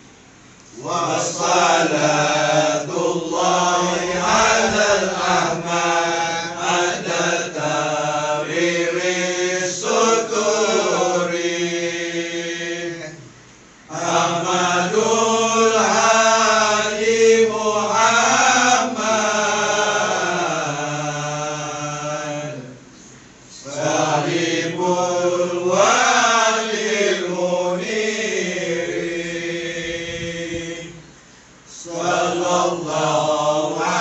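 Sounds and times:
men chanting devotional verses: 0.7 - 13.3, 13.9 - 31.1, 31.7 - 34.0.

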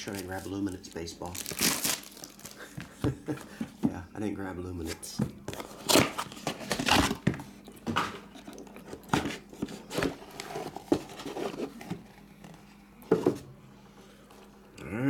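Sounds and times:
cardboard box scrapes and knocks: 9.1 - 12.2.

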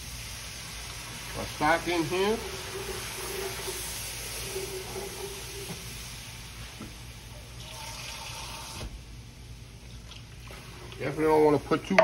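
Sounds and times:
stock being poured: 0.0 - 8.8
liquid hissing in hot skillet: 0.0 - 9.6, 10.4 - 12.0.

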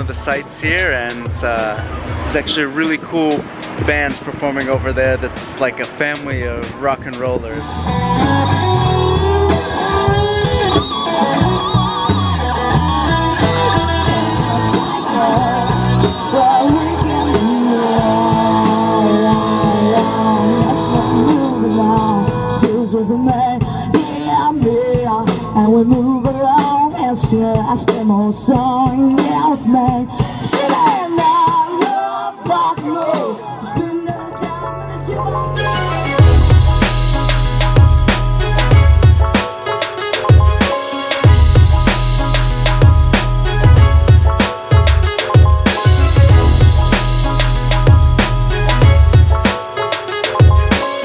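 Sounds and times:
rock band playing: 0.0 - 31.9, 34.4 - 51.0
person singing lead vocal: 12.2 - 36.4.

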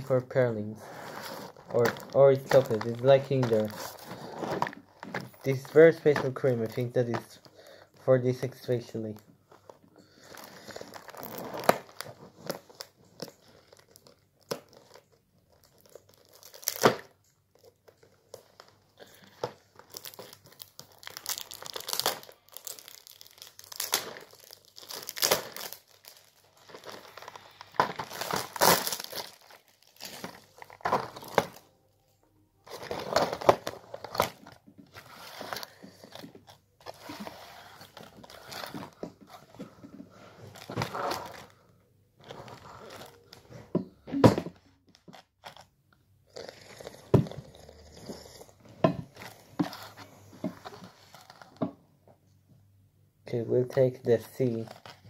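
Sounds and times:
packaging tearing and crinkling: 0.8 - 7.2, 10.2 - 31.7, 32.7 - 39.4, 44.9 - 45.7, 54.4 - 55.0.

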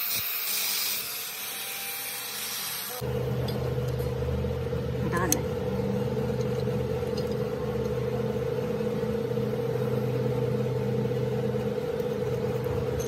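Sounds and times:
steady machine hum: 3.0 - 13.0.

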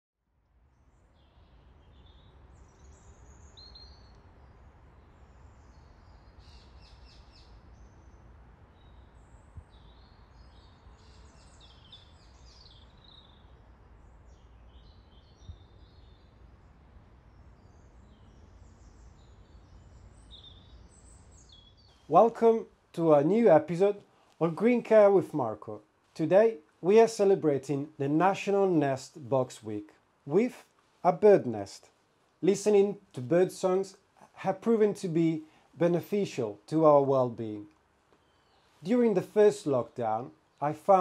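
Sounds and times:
songbirds chirping and warbling: 0.7 - 25.6, 36.3 - 41.0.

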